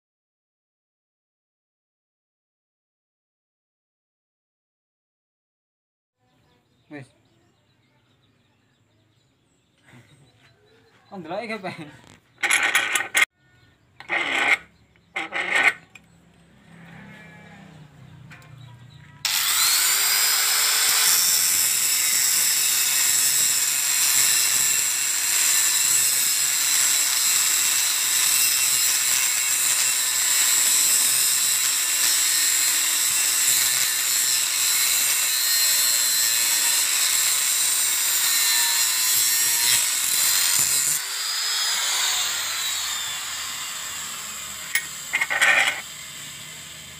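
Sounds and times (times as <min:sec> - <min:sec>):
angle grinder cutting steel: 0:12.4 - 0:13.3, 0:14.0 - 0:17.1, 0:19.2 - 0:46.9.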